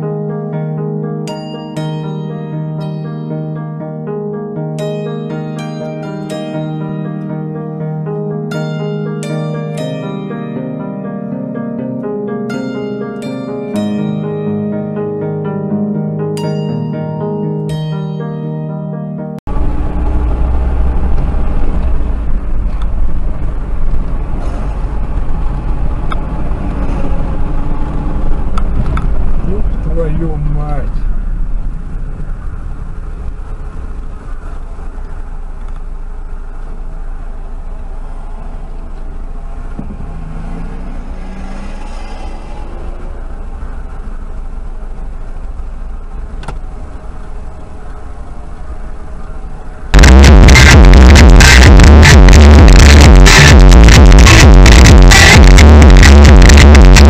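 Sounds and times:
car interior rumble: 0:19.5 - 0:57.0.

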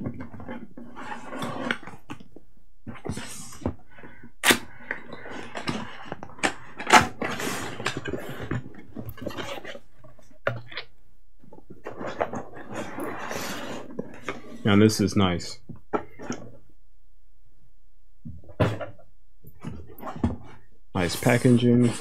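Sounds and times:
cardboard rustling and scraping: 0:11.5 - 0:14.8, 0:19.6 - 0:22.0.

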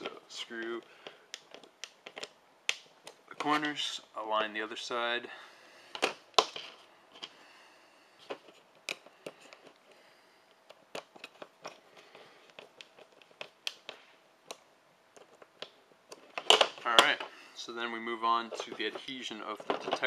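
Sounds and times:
plastic case clicking and tapping: 0:01.0 - 0:03.2, 0:15.2 - 0:17.2.

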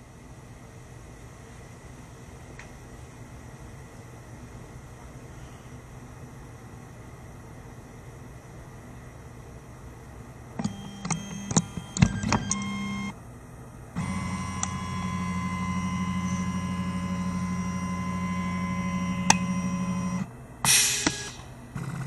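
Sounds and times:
electric motor whirring and whining: 0:14.0 - 0:20.3
brief hiss: 0:20.7 - 0:21.4.

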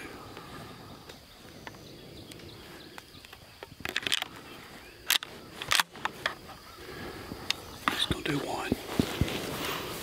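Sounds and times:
shells clicking into shotgun magazine: 0:03.2 - 0:04.4, 0:05.0 - 0:06.4.

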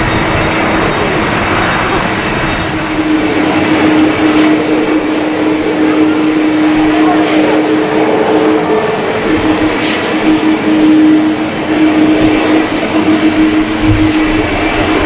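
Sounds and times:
jet engines rushing: 0:00.0 - 0:15.0
low hum tone: 0:00.0 - 0:15.0.

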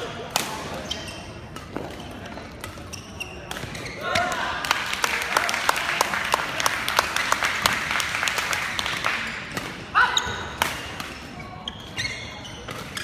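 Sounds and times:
crowd chatter: 0:00.0 - 0:13.0.

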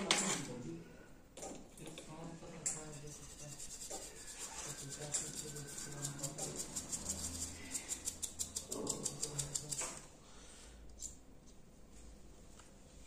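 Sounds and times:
small brush scrubbing: 0:02.8 - 0:09.8.

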